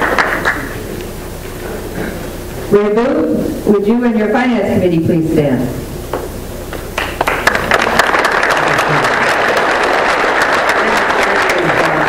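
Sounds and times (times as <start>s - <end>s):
audience applauding: 0.0s - 0.8s, 7.0s - 12.0s.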